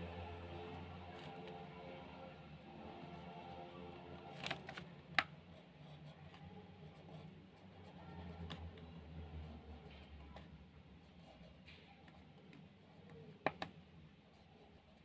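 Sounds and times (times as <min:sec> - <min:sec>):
low steady hum: 0:00.0 - 0:15.0
pen writing on paper: 0:05.5 - 0:08.7, 0:11.1 - 0:13.4.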